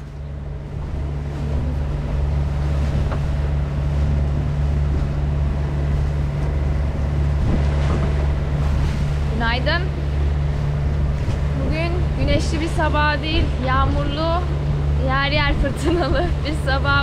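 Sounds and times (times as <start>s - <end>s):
outboard motor running: 0.0s - 17.0s
water and wind noise: 0.0s - 17.0s.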